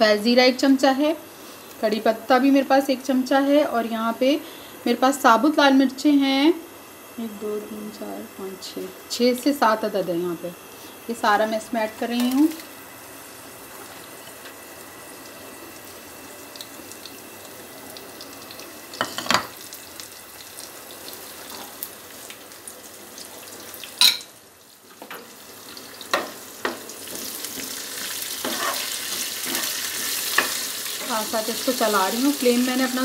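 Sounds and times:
spices sizzling in hot oil: 7.2 - 33.0
ladle stirring pan: 28.4 - 31.1.

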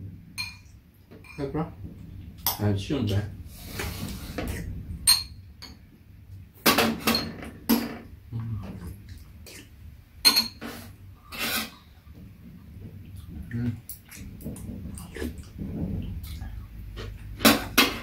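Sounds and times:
spoons clinking on ceramic bowls: 0.4 - 1.5, 10.3 - 10.6
slurping: 3.5 - 4.9, 8.4 - 9.8, 10.6 - 18.0.

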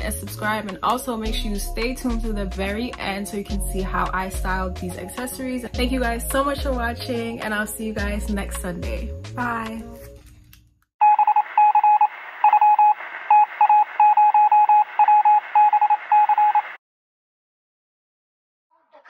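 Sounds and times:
short electronic beeps: 11.0 - 16.7.

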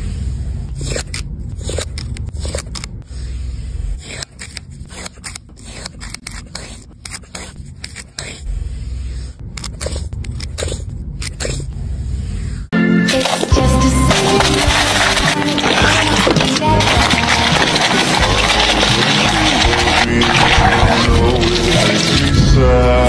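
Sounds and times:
spatula scraping in glass jar: 13.1 - 22.6.

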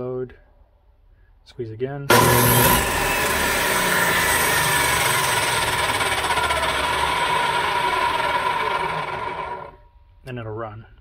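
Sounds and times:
circular saw motor whine: 2.1 - 9.8.

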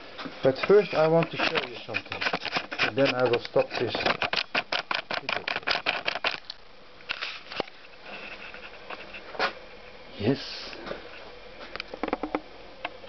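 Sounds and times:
camera handling clicks and rustles: 1.2 - 7.8.

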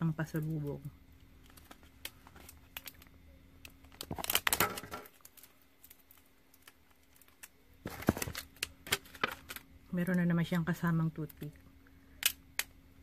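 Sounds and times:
plastic packaging crinkling: 1.4 - 9.7.

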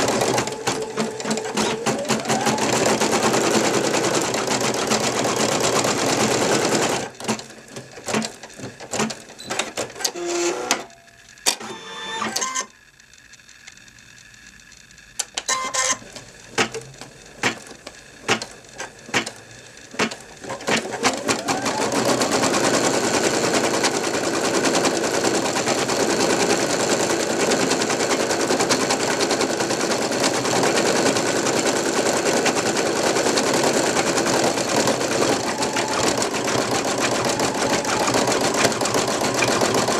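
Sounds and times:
embroidery machine stitching: 0.0 - 12.7, 15.2 - 39.9
sharp clicks and knocks: 16.2 - 21.0.

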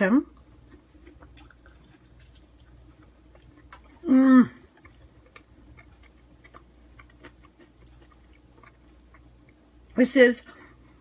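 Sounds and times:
person chewing: 0.3 - 9.9
person humming mmm: 4.0 - 4.6.

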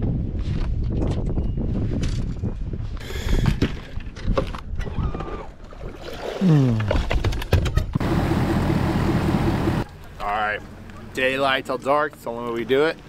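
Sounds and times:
wind rumble on microphone: 0.0 - 5.6.

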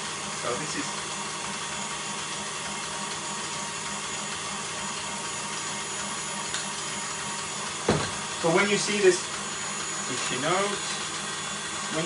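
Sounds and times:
electric stand mixer whirring: 0.0 - 12.0.

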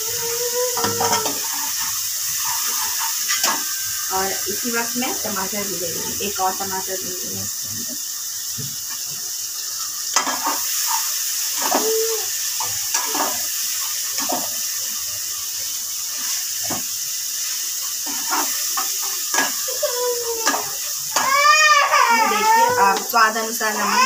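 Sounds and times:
food sizzling in hot oil: 0.0 - 24.0
spoon scraping and knocking pan: 0.7 - 3.8, 10.1 - 12.0, 14.2 - 14.7, 18.0 - 19.7, 20.4 - 23.2.

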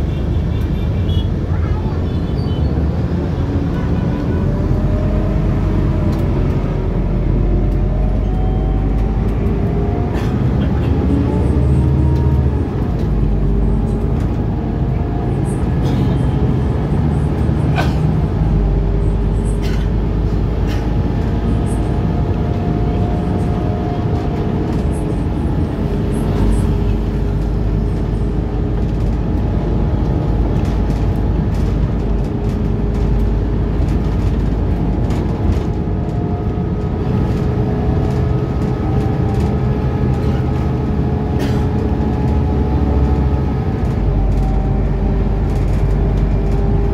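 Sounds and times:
bus engine and road rumble: 0.0 - 46.9
body clicks and rattles: 22.2 - 46.9.

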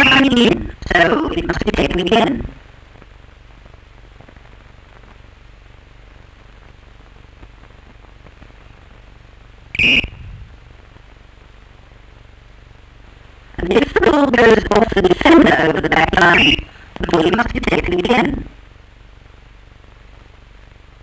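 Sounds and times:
old film soundtrack hum and hiss: 0.0 - 21.0
referee whistle blast: 9.8 - 10.3.

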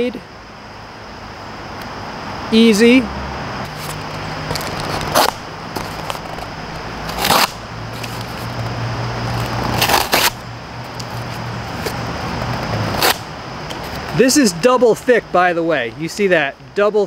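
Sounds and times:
knife slicing cardboard: 7.1 - 7.6, 9.7 - 10.4.

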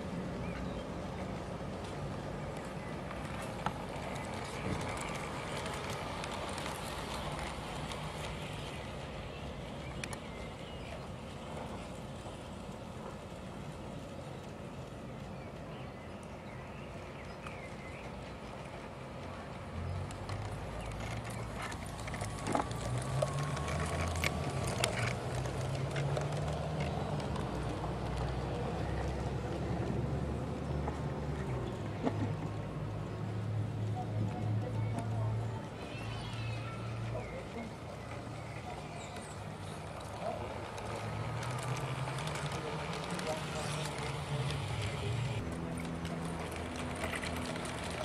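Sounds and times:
model train running hum: 0.0 - 15.7, 34.0 - 48.0
wheels clicking over rail joints: 0.0 - 48.0
model train motor hum: 35.6 - 48.0.

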